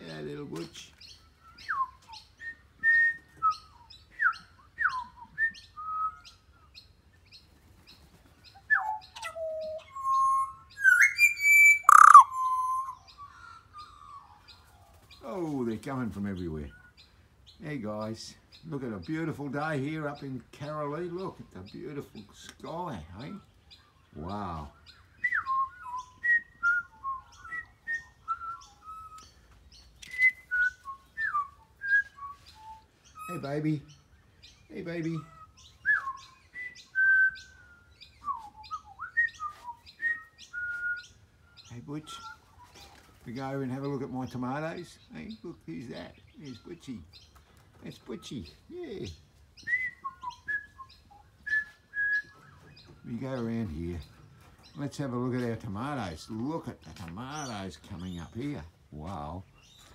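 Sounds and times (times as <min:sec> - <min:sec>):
birds whistling: 0:00.0 - 0:15.2, 0:16.3 - 0:59.9
bird whistling fluting notes: 0:08.7 - 0:13.0.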